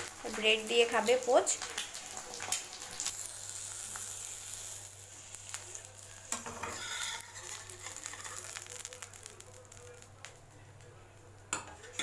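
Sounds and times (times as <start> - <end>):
egg sizzling in hot oil: 0.0 - 12.0
metal spatula scraping pan: 6.3 - 7.6.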